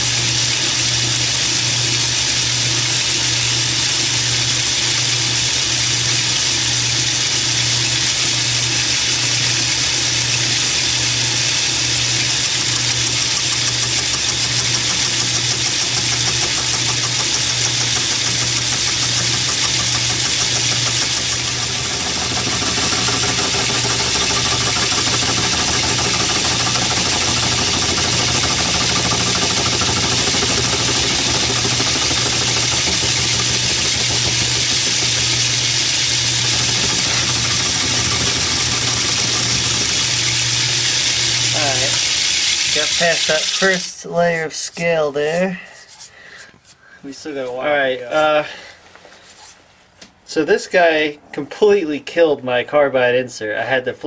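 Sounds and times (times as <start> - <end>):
metal lathe cutting: 0.1 - 43.8.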